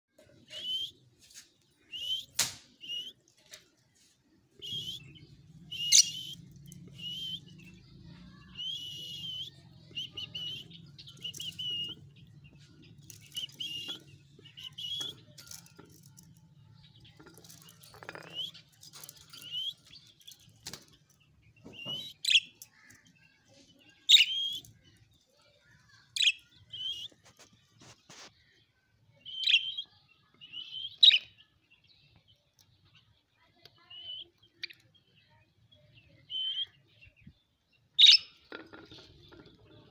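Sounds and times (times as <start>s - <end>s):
budgerigars chirping: 5.7s - 7.5s, 8.6s - 12.6s.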